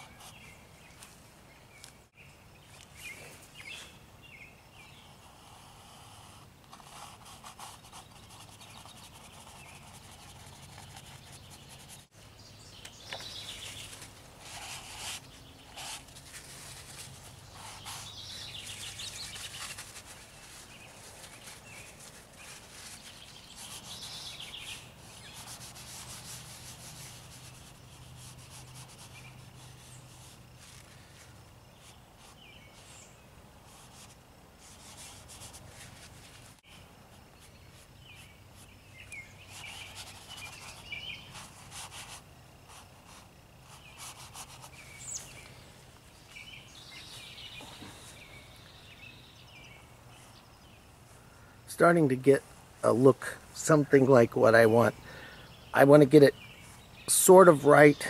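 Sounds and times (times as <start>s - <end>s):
paper towel scrubbing canvas: 13.6s - 32.4s.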